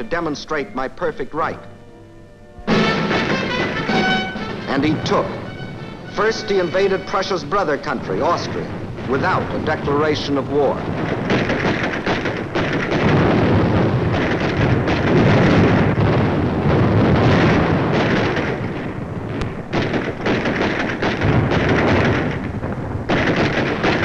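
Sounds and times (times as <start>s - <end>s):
cannon fire: 2.7s - 24.0s
explosions: 2.7s - 24.0s
musket fire: 2.7s - 24.0s.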